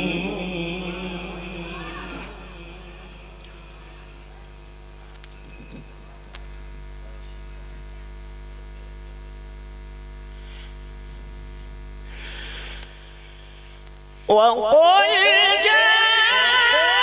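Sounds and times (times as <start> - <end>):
electrical mains hum: 0.0 - 17.0
faint sound system hiss: 0.0 - 17.0
click: 4.6 - 5.4.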